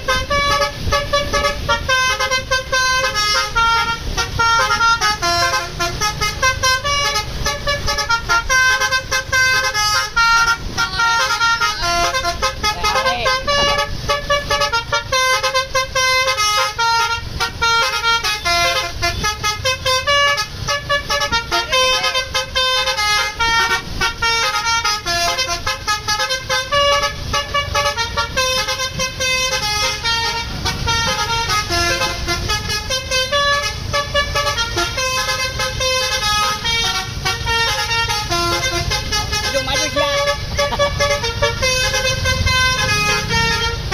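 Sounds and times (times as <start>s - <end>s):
low bus rumble: 0.0s - 43.9s
multi-tone air horn tune: 0.0s - 43.9s.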